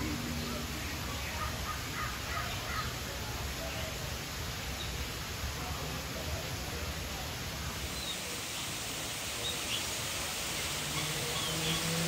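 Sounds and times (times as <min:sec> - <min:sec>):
waterfall rushing: 0:00.0 - 0:12.0
birds chirping: 0:07.9 - 0:12.0.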